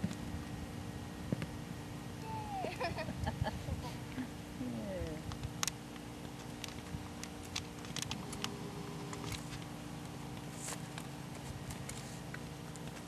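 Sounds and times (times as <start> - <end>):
faint steady hum: 0.0 - 13.0
horse hooves on grass: 6.0 - 13.0.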